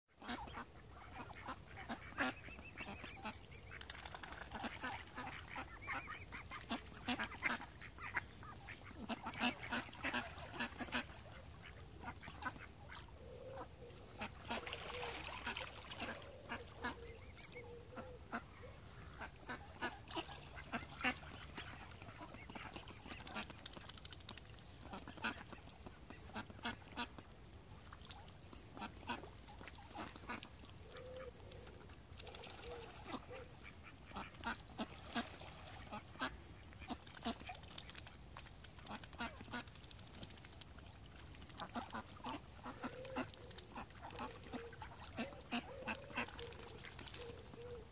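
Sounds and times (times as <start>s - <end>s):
ducks calling: 0.2s - 3.8s, 4.5s - 23.4s, 28.7s - 37.7s, 41.5s - 47.9s.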